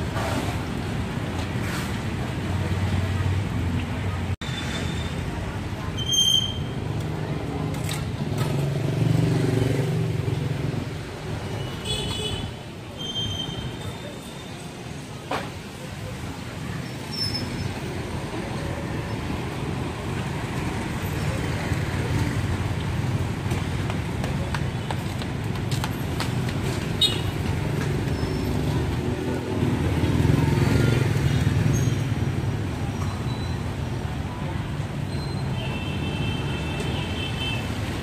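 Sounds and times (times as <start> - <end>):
passing motorbikes and cars: 6.8 - 11.7, 15.7 - 35.7.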